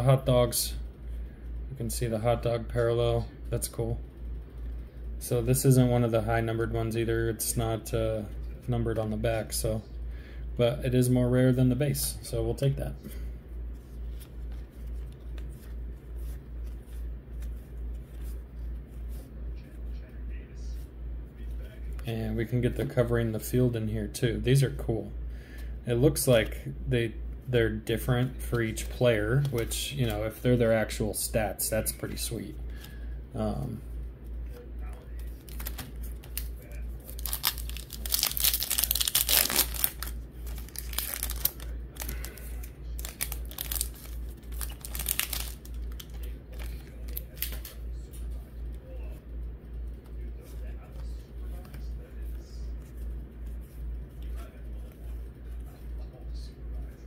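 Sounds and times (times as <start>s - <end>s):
cards clicking and rustling: 34.8s - 48.3s
foil wrapper tearing and crinkling: 35.4s - 47.8s.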